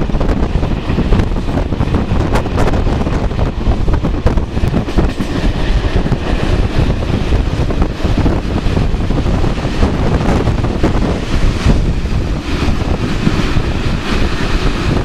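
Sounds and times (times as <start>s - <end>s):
wind buffeting microphone: 0.0s - 15.0s
scattered clacks: 4.3s - 6.6s.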